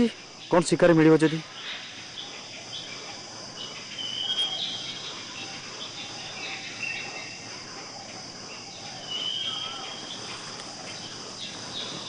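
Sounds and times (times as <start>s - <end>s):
crickets chirring: 0.0s - 12.0s
high bird whistles: 4.0s - 4.9s.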